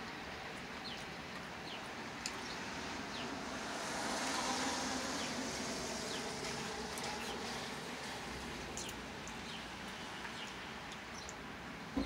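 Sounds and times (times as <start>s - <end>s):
vehicle passing: 2.6s - 8.4s.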